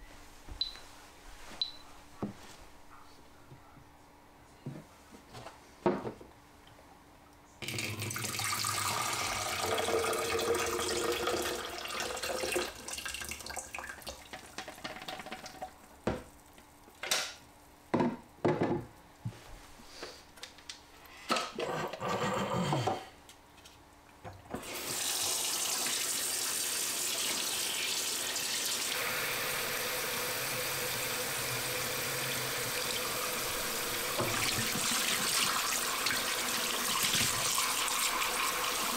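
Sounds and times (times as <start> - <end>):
liquid pouring into a plastic jug: 7.6 - 15.7
tap running water: 7.6 - 16.4, 24.2 - 38.9.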